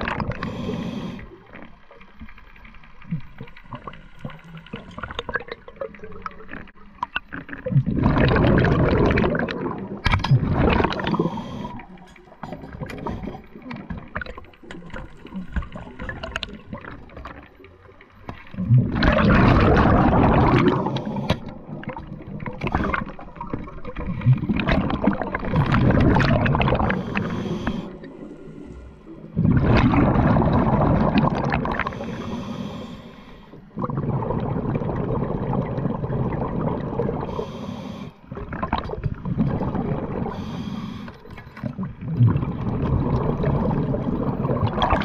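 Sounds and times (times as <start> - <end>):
bubbles gurgling underwater: 0.0 - 28.2, 29.1 - 32.4, 33.6 - 37.4, 38.3 - 40.5, 41.2 - 45.0.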